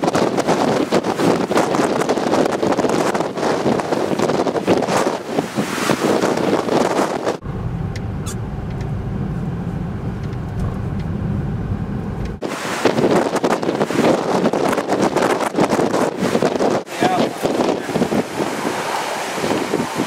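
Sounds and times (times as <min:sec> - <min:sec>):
gusty wind on microphone: 0:00.0 - 0:20.0
steady low rumble: 0:07.4 - 0:12.4.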